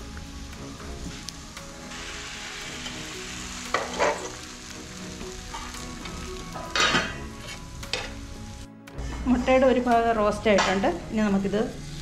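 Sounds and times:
eggs sizzling in hot oil: 0.0s - 12.0s
metal spatula scraping pan: 3.7s - 4.4s.

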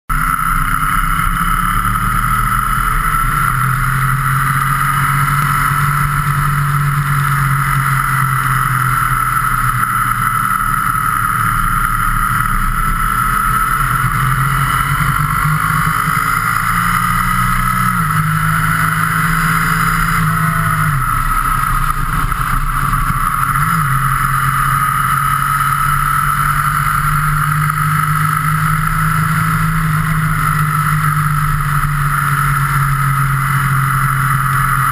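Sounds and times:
motorcycle engine running: 0.1s - 34.9s
wind noise: 13.1s - 24.5s.

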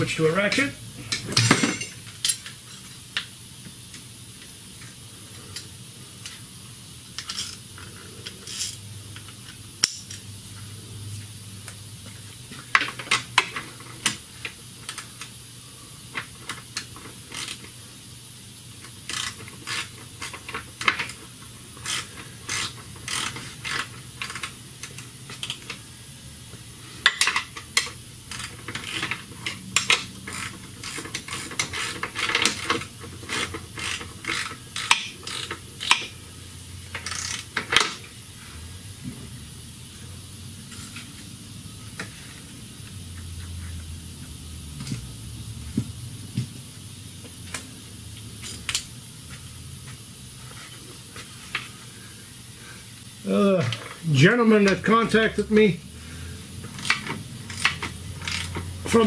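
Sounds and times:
hand ratchet clicking: 16.1s - 17.8s, 18.8s - 25.8s, 27.0s - 36.2s, 36.9s - 38.1s, 56.6s - 59.0s.

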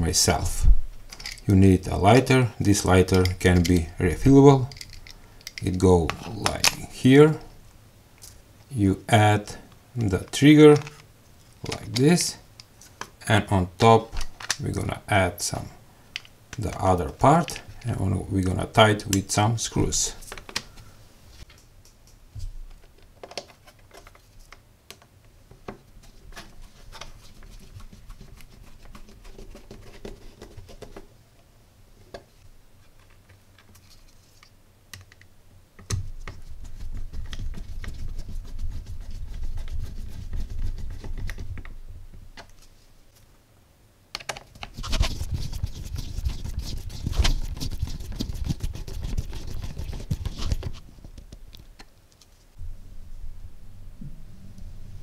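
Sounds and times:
handling plastic parts: 4.6s - 6.8s.

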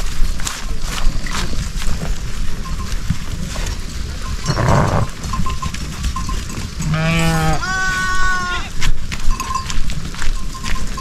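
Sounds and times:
sheep bleating: 6.8s - 8.8s.

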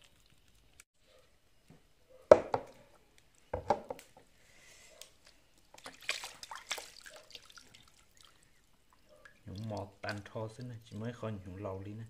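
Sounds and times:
light water splashing: 4.9s - 12.0s
wet squelching: 5.0s - 11.5s.

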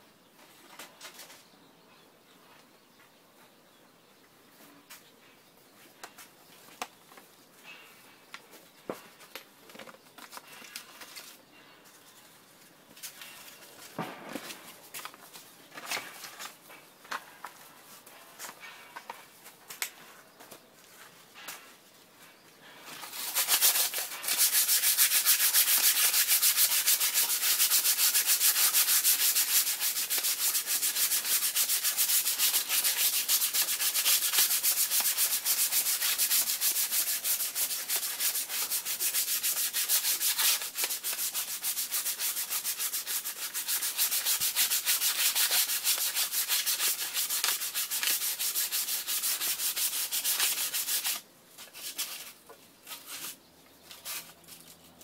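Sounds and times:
sandpaper rubbing on metal: 23.0s - 53.4s.

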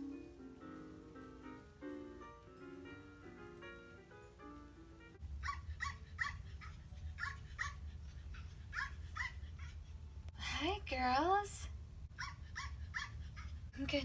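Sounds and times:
puppy yipping and whimpering: 5.4s - 10.0s, 12.2s - 13.6s.

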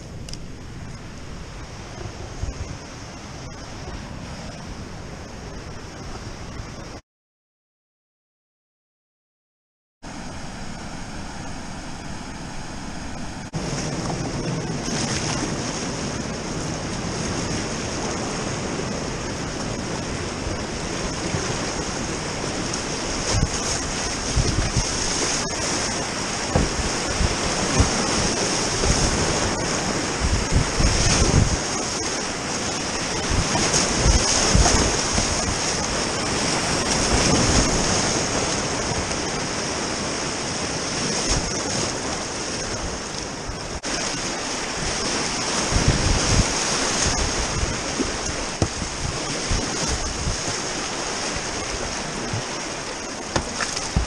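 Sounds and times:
wind buffeting microphone: 0.0s - 7.0s, 13.1s - 54.0s
whitewater rapids rushing: 17.5s - 41.0s, 43.7s - 54.0s.

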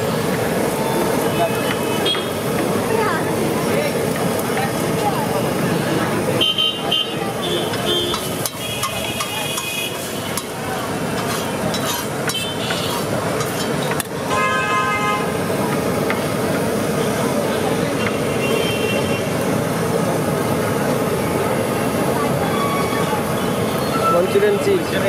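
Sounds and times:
traffic noise: 0.0s - 25.0s
vehicle horns honking: 1.3s - 2.4s, 6.4s - 10.4s, 12.3s - 13.0s, 14.2s - 15.3s, 18.0s - 19.4s.

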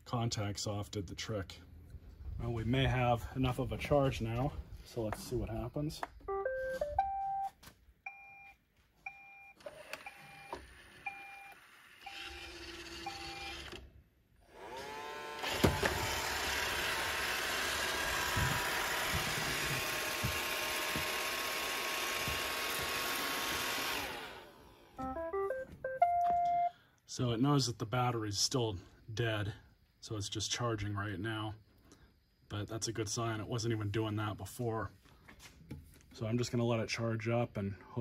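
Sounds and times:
electronic beep melody: 6.3s - 7.5s, 25.0s - 26.7s
single electronic beeps: 6.3s - 11.6s, 25.0s - 26.8s
robot vacuum motor whine: 9.6s - 13.8s, 14.5s - 25.0s.

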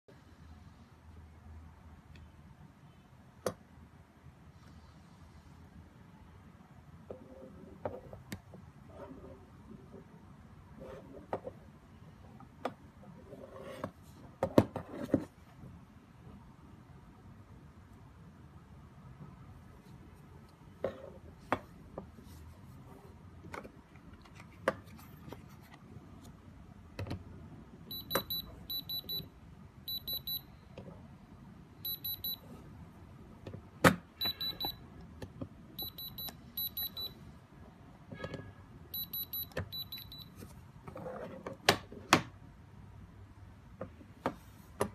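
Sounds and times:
electronic alarm beeping: 27.9s - 29.3s, 29.9s - 30.5s, 31.8s - 32.4s, 34.2s - 34.8s, 35.8s - 37.2s, 38.9s - 40.3s.

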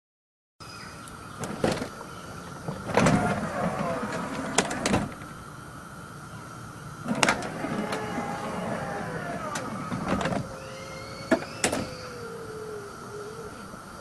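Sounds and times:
car door motor whirring: 2.6s - 5.3s, 7.0s - 12.2s
door mechanism clunks: 2.6s - 5.3s, 7.1s - 12.2s.

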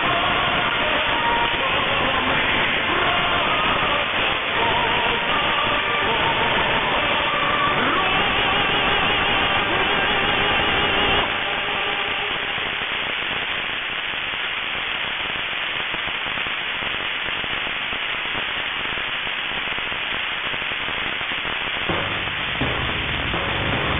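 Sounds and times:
music over radio: 0.0s - 23.9s
radio static hiss: 0.0s - 23.9s
low hum: 21.9s - 23.9s.

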